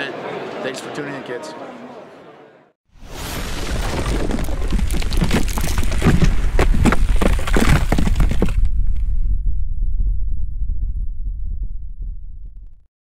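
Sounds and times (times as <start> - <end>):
low rumble: 3.5 - 12.9.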